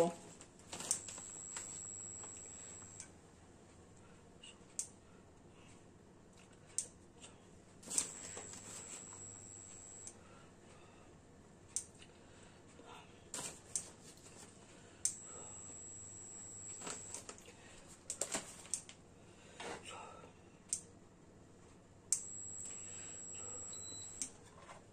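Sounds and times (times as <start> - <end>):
faint high whine: 0.0 - 3.1, 7.9 - 10.4, 15.1 - 17.3, 22.1 - 24.5.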